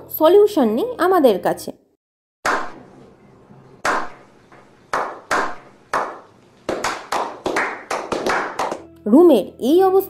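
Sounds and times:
slow handclapping: 0:03.8 - 0:09.0.

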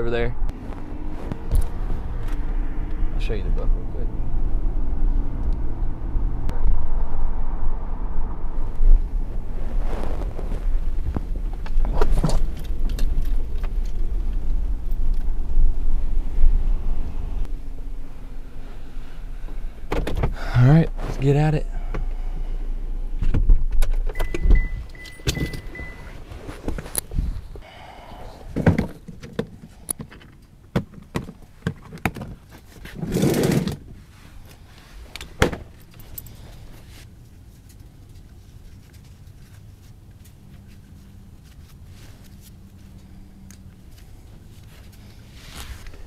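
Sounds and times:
low rumble: 0:00.2 - 0:19.9
short rustle: 0:09.0 - 0:14.6, 0:34.0 - 0:46.0.

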